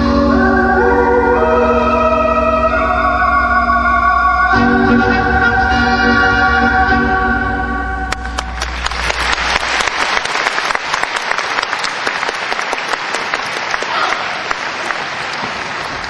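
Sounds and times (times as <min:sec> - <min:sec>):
performance music: 0:00.0 - 0:16.0
audience applause: 0:08.1 - 0:16.0.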